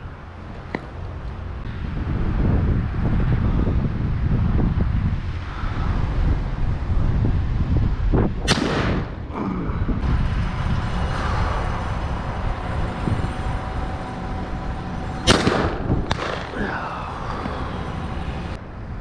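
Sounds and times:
shotgun shots with echo: 0:08.5 - 0:09.2, 0:15.3 - 0:16.6.

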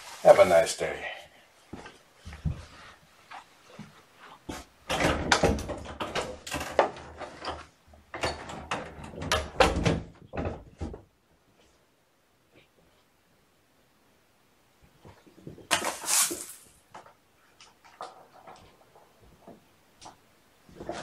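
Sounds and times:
knocks and rattling: 0:04.8 - 0:11.1
door shutting: 0:04.9 - 0:07.6.

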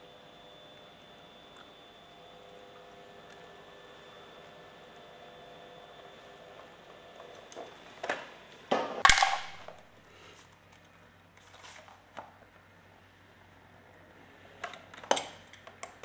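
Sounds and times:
welder machine hum: 0:00.0 - 0:11.9.

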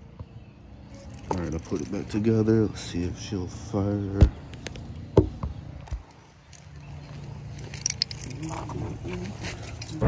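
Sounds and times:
keys jingling: 0:07.4 - 0:10.0.

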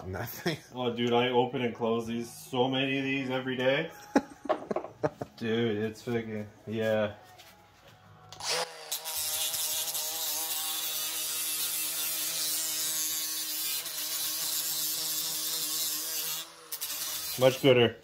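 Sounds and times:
grinder grinding steel: 0:08.3 - 0:17.8.

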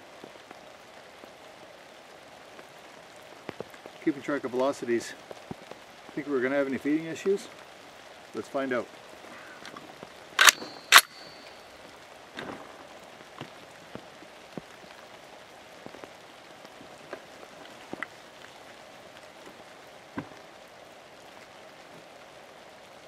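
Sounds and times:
steady rain: 0:00.0 - 0:23.0
rifle action metallic clacks: 0:10.4 - 0:11.6.

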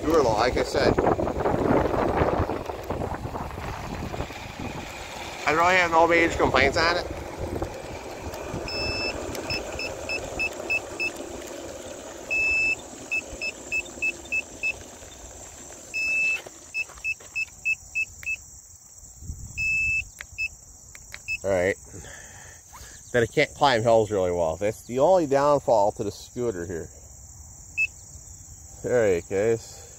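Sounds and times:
low motor rumble: 0:00.0 - 0:18.0
electric scooter beeping: 0:00.0 - 0:18.5, 0:19.5 - 0:21.7, 0:27.7 - 0:28.0.

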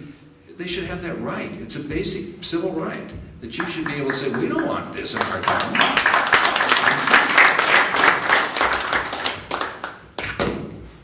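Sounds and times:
audience applauding: 0:03.6 - 0:10.4.

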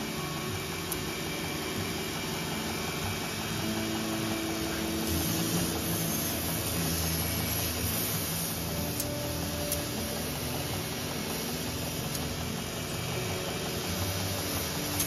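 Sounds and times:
belt grinder running: 0:00.0 - 0:15.0
knife blade grinding hiss: 0:04.8 - 0:12.4.

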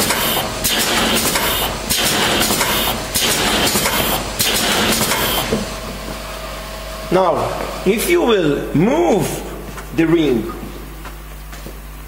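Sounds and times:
gluing machine clattering: 0:00.0 - 0:05.6.

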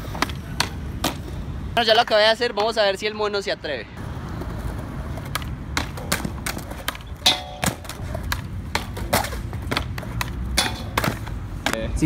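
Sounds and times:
skateboard wheels rolling on concrete: 0:00.0 - 0:12.0
skateboard clacks and knocks: 0:04.4 - 0:11.8.

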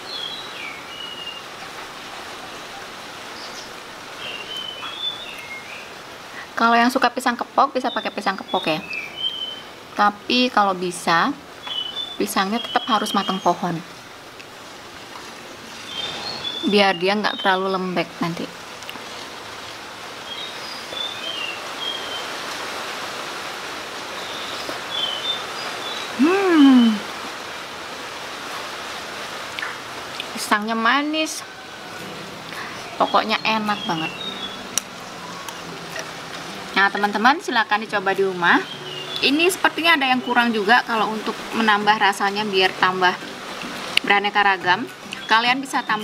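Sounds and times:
small birds chirping: 0:00.0 - 0:01.8, 0:02.4 - 0:06.1, 0:07.7 - 0:13.9, 0:15.3 - 0:19.0, 0:20.2 - 0:22.5, 0:24.0 - 0:27.1, 0:32.5 - 0:43.2, 0:44.0 - 0:46.0
steady background hiss: 0:00.0 - 0:46.0.

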